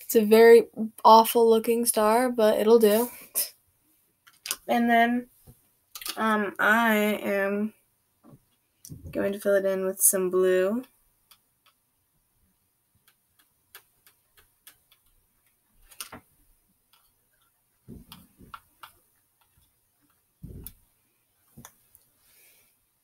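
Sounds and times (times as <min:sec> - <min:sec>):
makeup brush clicks and taps: 0:13.0 - 0:15.2
dull bumps: 0:17.9 - 0:18.6, 0:20.4 - 0:20.8.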